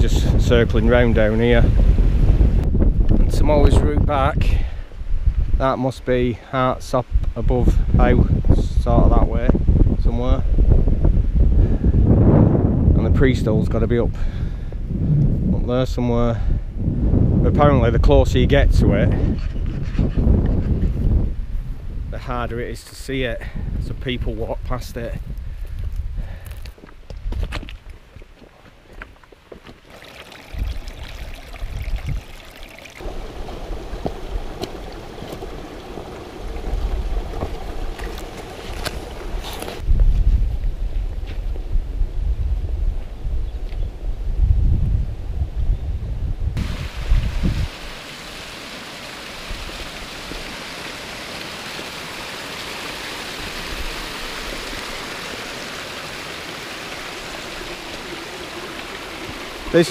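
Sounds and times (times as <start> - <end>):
wind gusting over microphone: 0.0 - 27.8, 30.4 - 59.9
footsteps on stony track: 25.1 - 30.1, 33.8 - 41.4
running water rushing: 27.7 - 39.8, 46.6 - 59.9.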